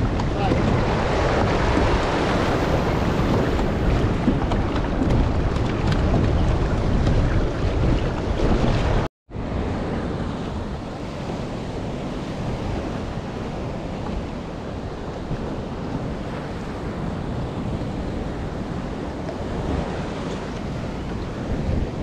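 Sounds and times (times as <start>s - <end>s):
waves and surf: 0.0s - 22.0s
wind buffeting microphone: 0.0s - 22.0s.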